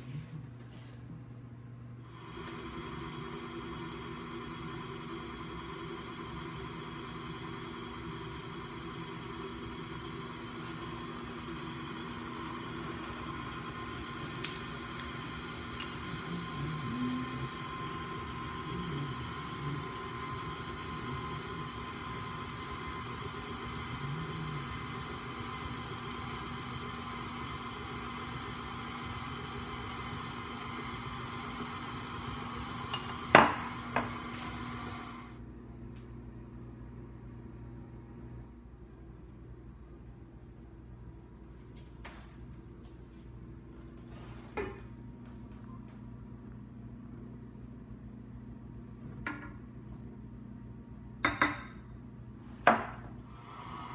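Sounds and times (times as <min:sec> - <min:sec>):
stand mixer motor running: 0:02.0 - 0:35.4, 0:53.4 - 0:53.9.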